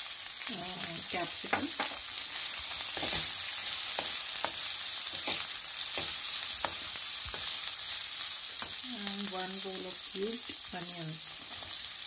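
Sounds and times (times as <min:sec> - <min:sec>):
food sizzling in oil: 0:00.0 - 0:12.0
wooden spatula scraping pan: 0:02.8 - 0:07.7.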